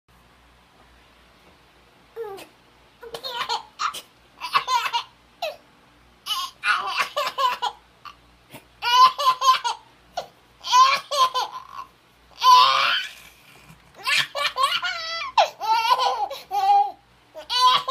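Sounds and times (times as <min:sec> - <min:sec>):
baby laughing: 0:02.2 - 0:05.6, 0:06.3 - 0:08.2, 0:08.8 - 0:13.4, 0:14.0 - 0:17.9.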